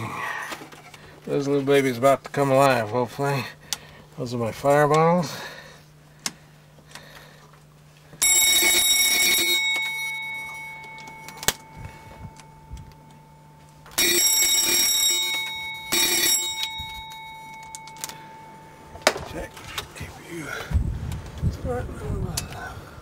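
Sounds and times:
low steady hum: 0:00.0 - 0:23.0
fire warning bell ringing: 0:08.2 - 0:20.0.

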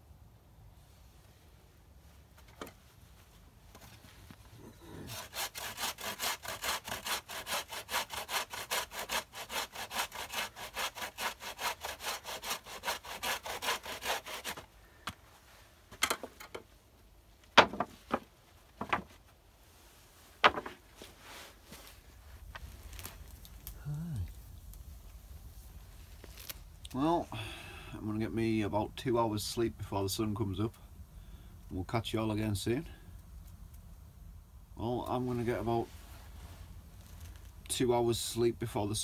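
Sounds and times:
hand saw cutting wood: 0:04.9 - 0:14.7
sharp knocks: 0:17.6 - 0:19.1.

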